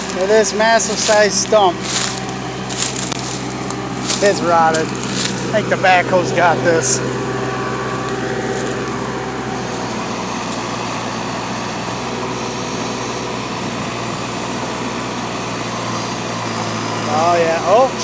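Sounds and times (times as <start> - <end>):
diesel engine under load: 0.0 - 18.0
high engine whine: 0.0 - 18.0.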